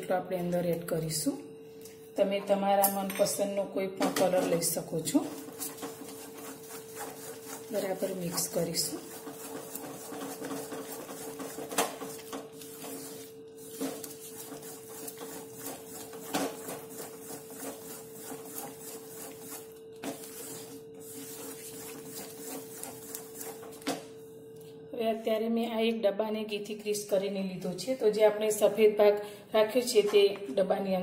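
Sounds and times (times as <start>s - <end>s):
steady hum: 0.0s - 31.0s
wooden spatula scraping a pan: 5.2s - 23.9s.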